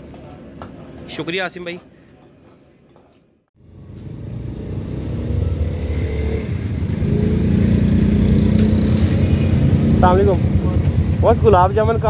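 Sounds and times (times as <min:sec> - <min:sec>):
motorcycle engine running: 0:03.6 - 0:12.0.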